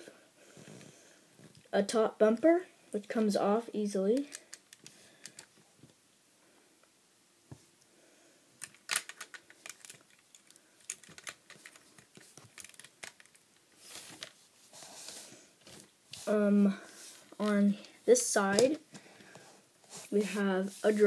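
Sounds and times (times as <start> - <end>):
plastic toy bricks clicking: 8.6 - 11.8.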